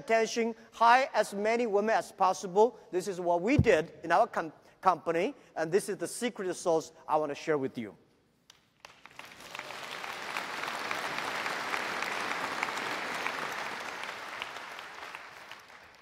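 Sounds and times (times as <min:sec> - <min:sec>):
large audience applauding: 0:08.8 - 0:16.0.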